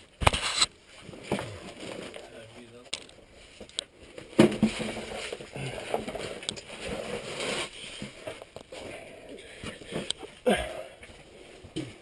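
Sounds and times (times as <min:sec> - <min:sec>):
clothing scraping against rock: 0:04.8 - 0:09.0.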